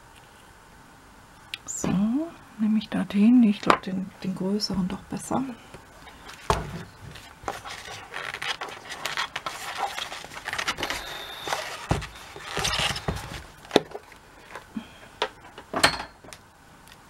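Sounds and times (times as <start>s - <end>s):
plastic block rustling and scraping: 6.0s - 14.6s.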